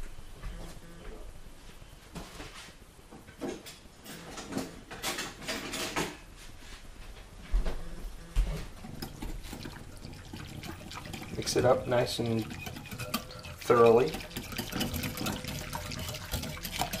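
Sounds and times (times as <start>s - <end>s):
kitchen knocks and clatter: 3.3s - 6.2s, 8.8s - 17.0s.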